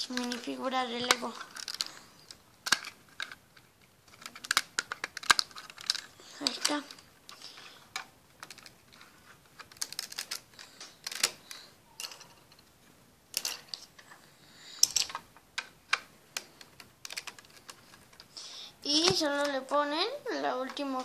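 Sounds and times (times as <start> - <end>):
plastic bricks clicking on table: 0.1 - 3.4, 4.1 - 8.8, 9.6 - 12.6, 13.3 - 13.9, 14.8 - 18.3.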